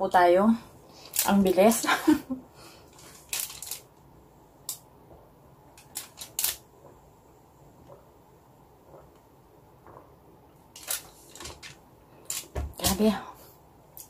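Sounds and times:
person gulping: 8.8s - 10.2s.

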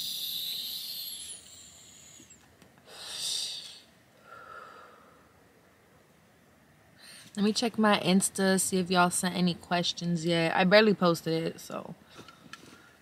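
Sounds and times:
airy inhale with high whistle: 0.0s - 5.2s
breathy exhale: 2.9s - 5.3s.

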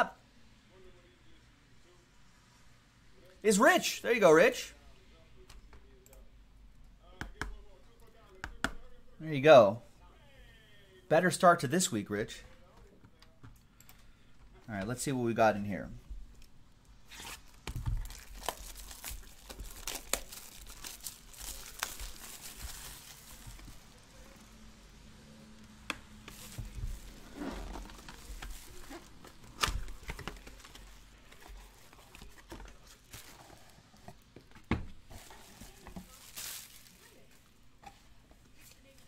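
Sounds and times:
shrink wrap crinkling: 16.4s - 24.4s, 26.2s - 34.3s, 35.0s - 37.5s.

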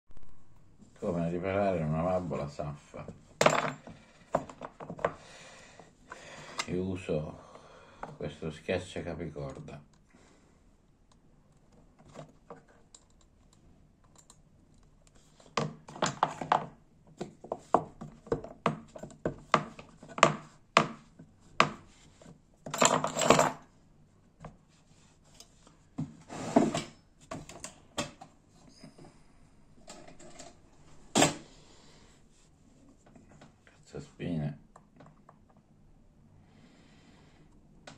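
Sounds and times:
metal tools clicking and clattering: 22.7s - 23.6s.

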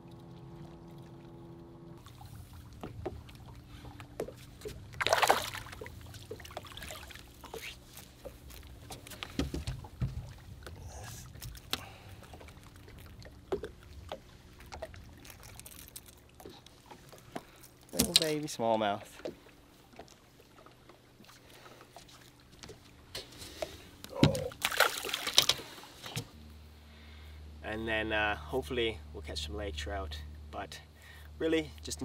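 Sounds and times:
low steady hum: 0.0s - 32.0s
fish splashing at the surface: 5.0s - 7.6s, 24.4s - 25.5s.

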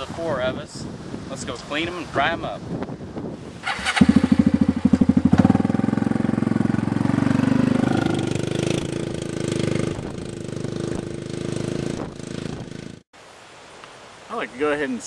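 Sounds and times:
atv engine revving: 3.6s - 13.0s.

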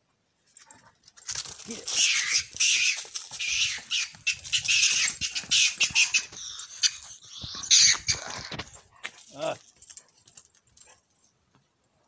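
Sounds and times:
ferret screeching: 1.5s - 8.8s.

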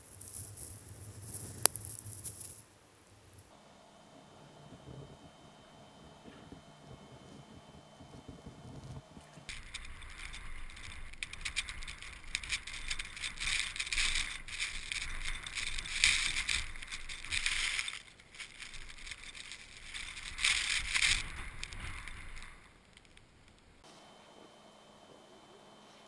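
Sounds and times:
blizzard wind gusting: 4.4s - 23.8s
wind rumble on microphone: 6.2s - 17.8s.

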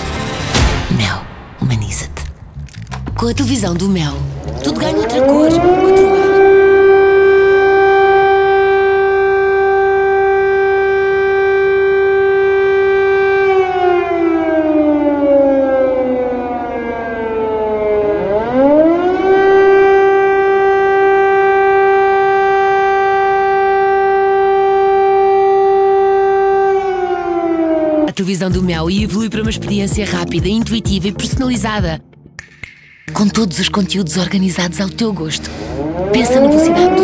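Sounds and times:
air raid siren wailing: 4.2s - 28.2s, 34.0s - 37.0s.

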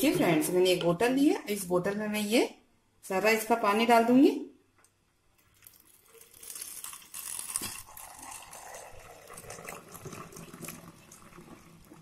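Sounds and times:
liquid pouring into a bottle: 5.4s - 12.0s.

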